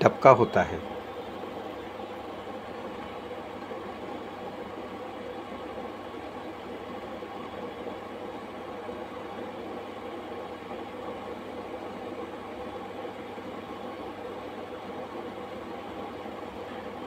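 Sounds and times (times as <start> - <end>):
water boiling in a pot: 0.1 - 17.0.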